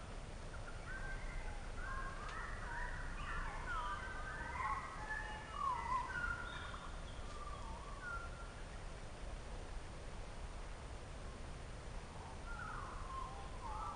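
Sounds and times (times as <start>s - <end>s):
songbirds singing: 0.0s - 9.2s, 12.0s - 13.9s.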